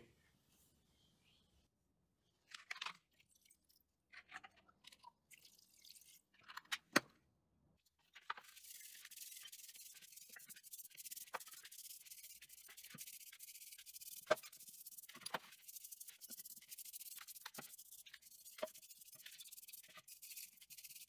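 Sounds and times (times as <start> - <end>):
brush bristles scrubbing metal: 8.3 - 21.0.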